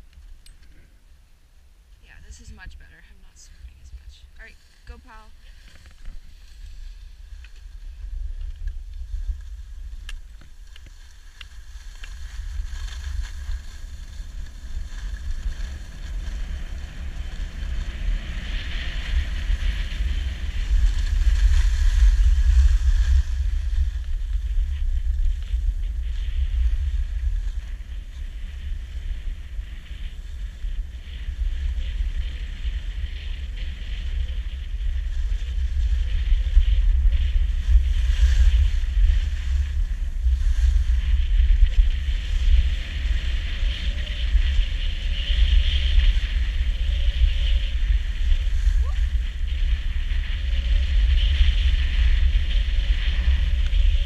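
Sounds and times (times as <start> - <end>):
wind buffeting microphone: 1.7 - 54.0
skis hissing on packed snow: 4.5 - 7.4.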